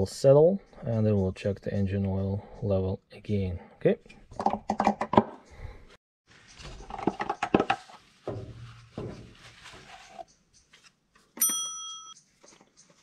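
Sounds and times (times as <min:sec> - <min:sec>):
rustling: 0:06.3 - 0:11.4.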